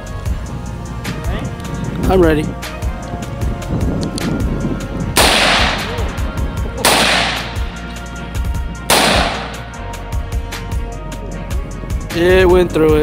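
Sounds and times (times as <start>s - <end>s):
rifle shots with echo: 5.2s - 6.2s, 6.8s - 7.8s, 8.9s - 9.8s.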